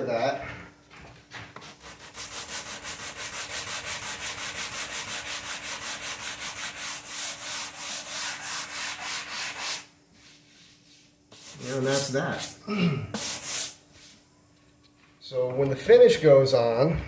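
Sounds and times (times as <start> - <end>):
sanding block rubbing wood: 1.6 - 12.6, 13.2 - 14.2.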